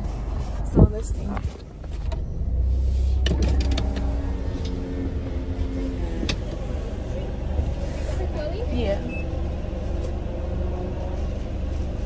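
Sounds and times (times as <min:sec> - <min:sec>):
car engine idling: 0:00.0 - 0:12.0
power window motor: 0:03.0 - 0:06.9.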